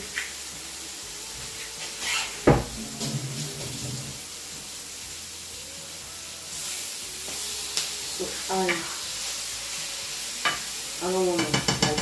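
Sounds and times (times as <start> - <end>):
kitchen clatter: 11.3 - 12.0.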